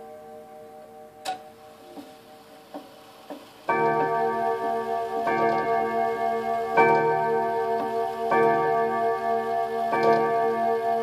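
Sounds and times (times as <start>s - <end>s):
wall clock striking: 0.0s - 2.1s, 2.7s - 11.0s
clock ticking: 3.7s - 6.0s.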